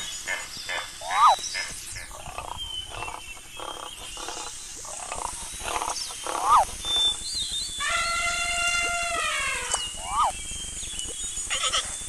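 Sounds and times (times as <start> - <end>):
animal giving long high call: 7.8 - 10.4.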